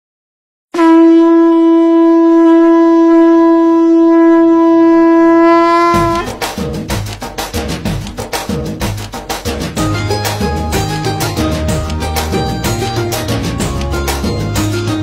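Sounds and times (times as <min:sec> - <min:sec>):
conch shell blown: 0:00.7 - 0:06.4
drum-led music: 0:05.8 - 0:15.0.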